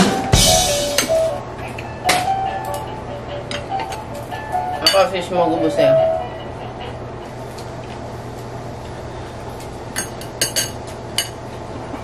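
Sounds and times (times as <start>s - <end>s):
steady low hum: 0.0s - 12.0s
tableware clinking on ceramic: 4.8s - 5.1s, 10.0s - 11.4s.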